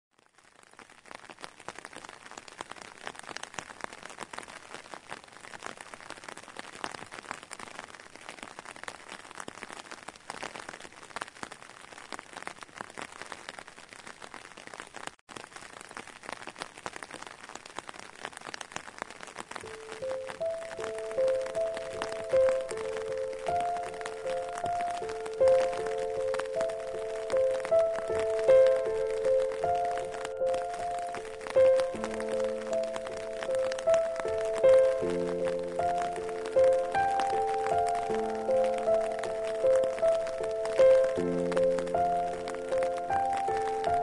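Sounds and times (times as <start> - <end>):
rain on wet pavement: 0.1 - 44.0
background music: 19.7 - 44.0.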